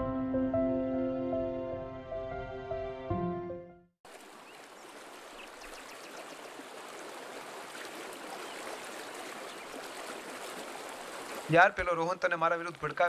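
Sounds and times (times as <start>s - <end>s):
flowing water rushing: 4.1s - 13.0s.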